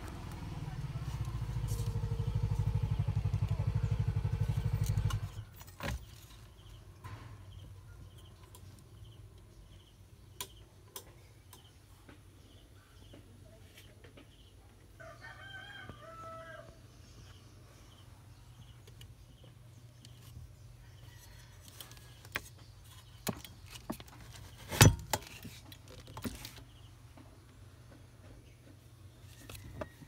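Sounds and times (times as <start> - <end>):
rooster crowing: 15.0 - 16.9.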